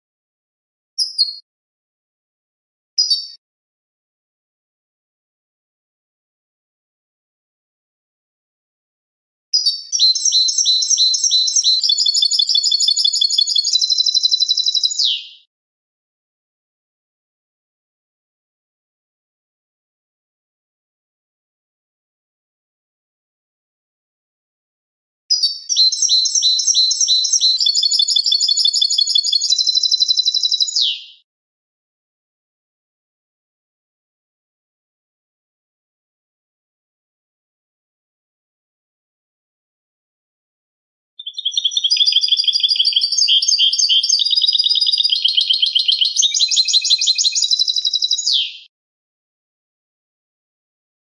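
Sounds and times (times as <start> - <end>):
goldfinch singing: 9.6 - 15.4, 25.3 - 31.1, 41.2 - 48.7.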